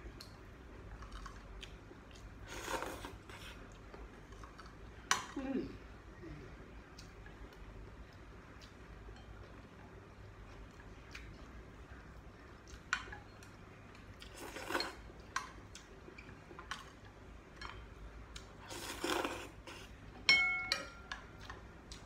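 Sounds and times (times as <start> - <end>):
slurping noodles: 2.4 - 3.6, 14.3 - 15.0, 18.6 - 20.0
spoon clinking on bowl: 20.3 - 21.3.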